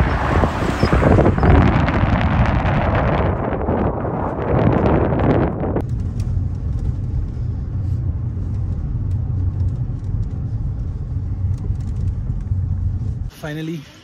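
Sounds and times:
wind buffeting microphone: 0.0 - 13.1
car interior rumble: 0.0 - 13.8.

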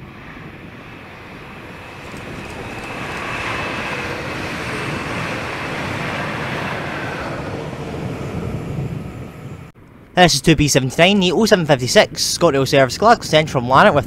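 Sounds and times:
steady train whine: 0.0 - 12.4
train wheels rumbling on rail: 1.4 - 9.7.

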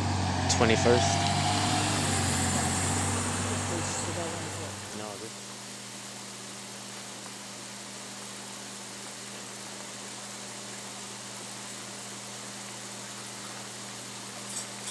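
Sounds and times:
low hum: 0.0 - 5.3.

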